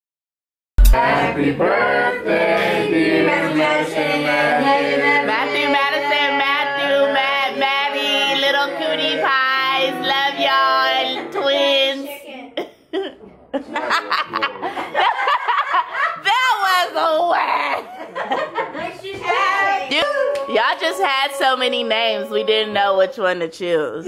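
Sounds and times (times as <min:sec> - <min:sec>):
women and children singing: 0:00.8 - 0:12.2, 0:19.1 - 0:23.2.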